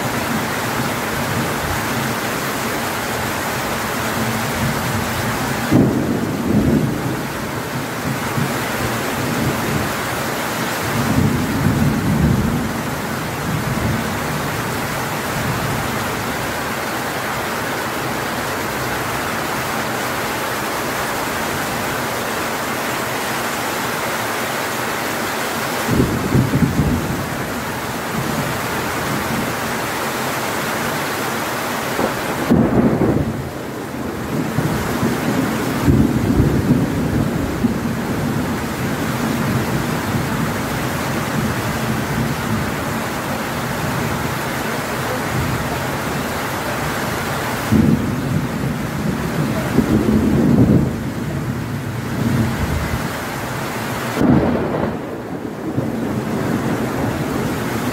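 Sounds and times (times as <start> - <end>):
heavy rain pouring: 0.0 - 57.9
low rumbles of thunder: 4.4 - 9.9, 10.8 - 16.2, 25.9 - 29.4, 32.0 - 42.9, 47.6 - 53.1, 54.2 - 57.9.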